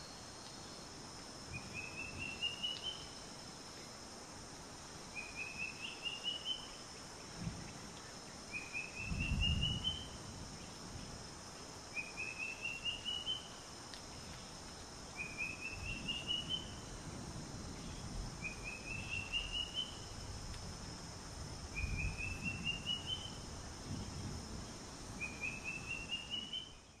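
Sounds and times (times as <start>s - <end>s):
bird singing: 1.5s - 3.2s, 5.2s - 6.8s, 8.5s - 10.2s, 11.9s - 13.6s, 15.2s - 16.8s, 17.8s - 20.1s, 21.8s - 23.4s, 25.2s - 27.0s.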